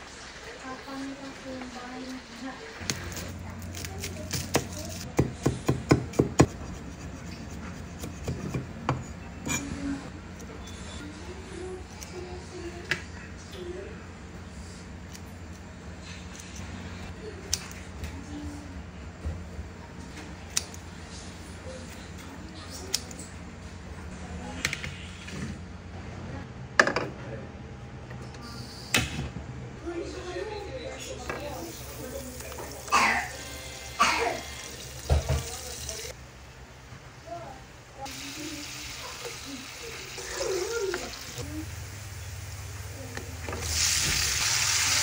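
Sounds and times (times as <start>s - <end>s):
knife chopping on wooden board: 4.4s - 6.5s.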